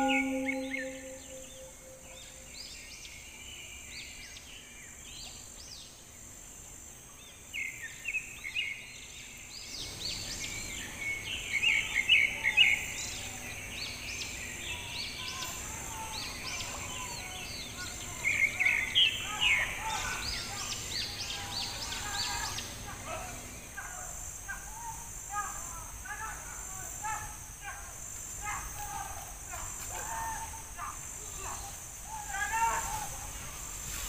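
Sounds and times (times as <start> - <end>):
birds chirping: 0.0 - 2.0.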